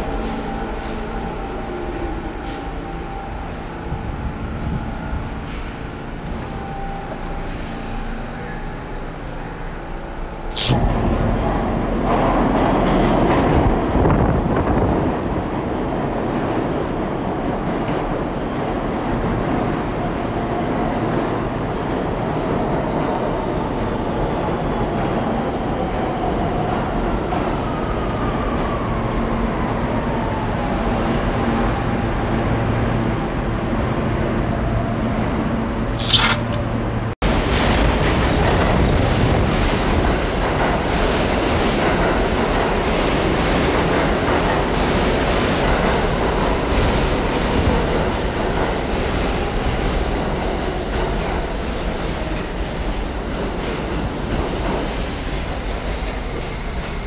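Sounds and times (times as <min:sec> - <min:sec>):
subway train motor whine: 0:00.0 - 0:10.5
sharp hiss: 0:10.5 - 0:11.2, 0:36.0 - 0:36.6.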